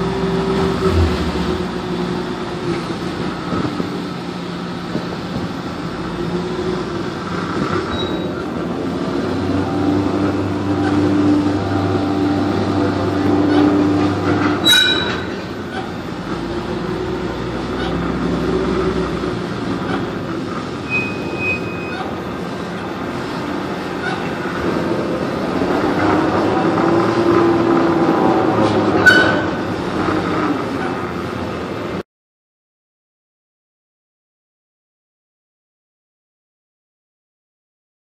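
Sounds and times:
crane machinery drone: 0:00.0 - 0:32.0.

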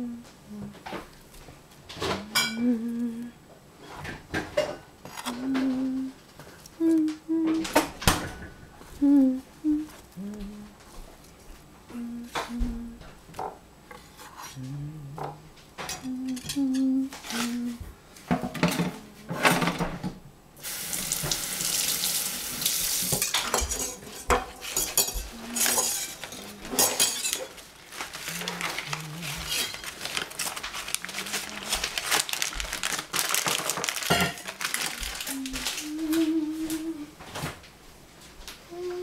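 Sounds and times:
kitchenware clatter: 0:02.0 - 0:02.6, 0:04.0 - 0:05.4, 0:15.2 - 0:17.6, 0:18.3 - 0:20.2, 0:23.0 - 0:32.5, 0:33.2 - 0:35.8
running tap hiss: 0:20.6 - 0:23.3
plastic bag crinkling: 0:25.2 - 0:36.8.

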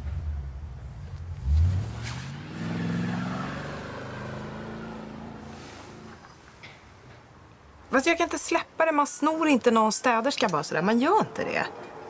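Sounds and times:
car engine revving and accelerating: 0:01.2 - 0:06.2.

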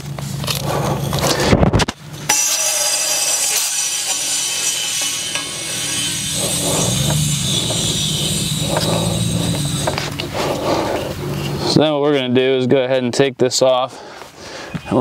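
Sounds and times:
low hum: 0:00.0 - 0:11.8
gas hissing with high whistling: 0:02.4 - 0:11.6.

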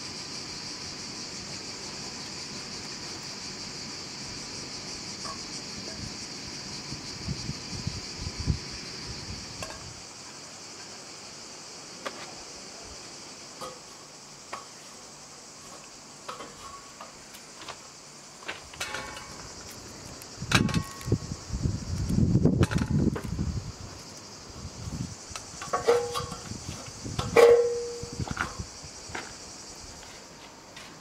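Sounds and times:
cicadas buzzing: 0:00.0 - 0:31.0
metallic knocks: 0:25.6 - 0:26.5, 0:27.2 - 0:28.6.

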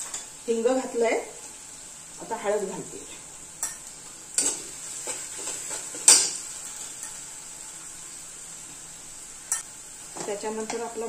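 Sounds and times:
onion frying in oil: 0:00.0 - 0:11.0
spatula scraping and knocking pan: 0:03.6 - 0:07.2.

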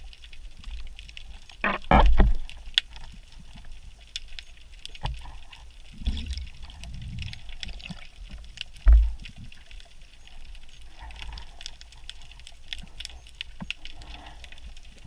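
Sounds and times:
faint underwater clicks: 0:00.0 - 0:15.0
low rumble of water movement: 0:00.0 - 0:15.0.

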